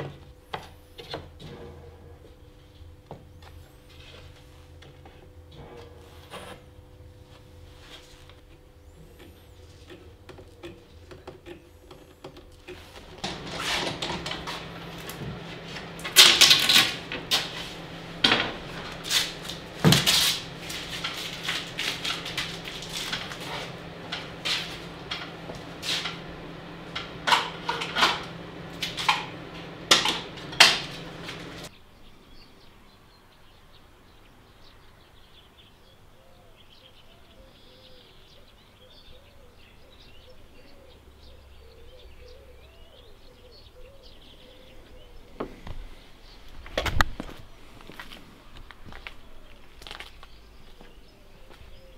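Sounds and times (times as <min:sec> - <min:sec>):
steady low hum: 0:00.0 - 0:31.8
wooden parts and tools knocking: 0:09.2 - 0:17.5, 0:18.2 - 0:31.7.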